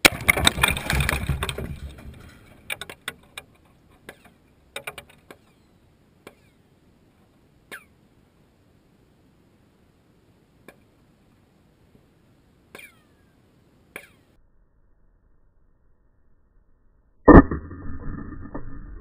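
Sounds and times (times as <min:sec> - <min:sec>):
debris clattering down: 0:00.0 - 0:05.2.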